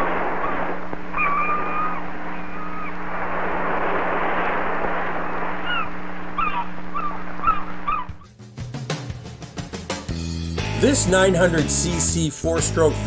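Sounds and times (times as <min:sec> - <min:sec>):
steady low hum: 0:00.0 - 0:08.2
gulls calling: 0:00.0 - 0:08.3.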